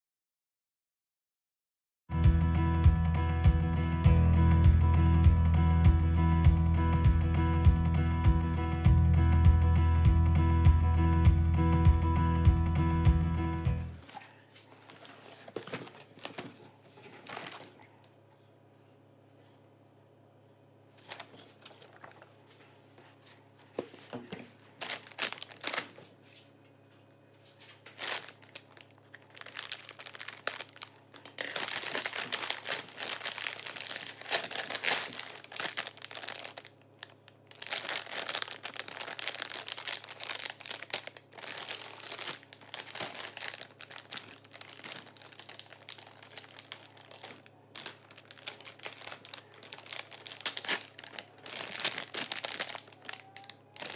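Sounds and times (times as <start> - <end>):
plastic packaging crinkling: 14.8 - 18.0, 20.9 - 22.6, 23.9 - 26.2, 27.5 - 53.9.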